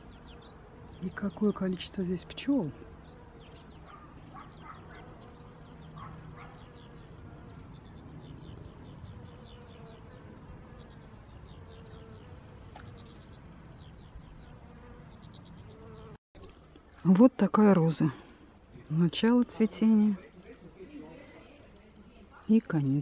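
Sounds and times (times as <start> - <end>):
bees buzzing: 0.0 - 16.2.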